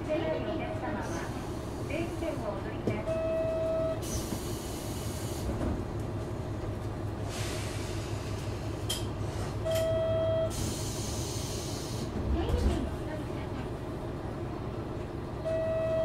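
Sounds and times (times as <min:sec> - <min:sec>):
diesel railcar engine idling: 0:00.0 - 0:16.0
air hissing: 0:04.0 - 0:05.5, 0:07.2 - 0:09.6, 0:10.5 - 0:12.1.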